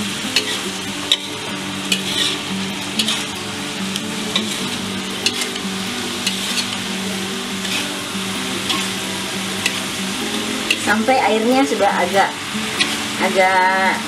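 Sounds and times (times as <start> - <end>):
food sizzling in a wok: 0.0 - 14.0
spatula scraping a pan: 0.4 - 3.4, 4.3 - 5.6, 6.2 - 6.8, 7.6 - 8.0, 12.6 - 13.2.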